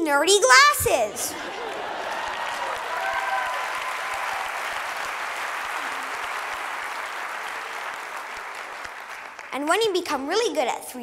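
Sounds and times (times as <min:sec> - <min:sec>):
audience applauding: 0:01.3 - 0:09.6.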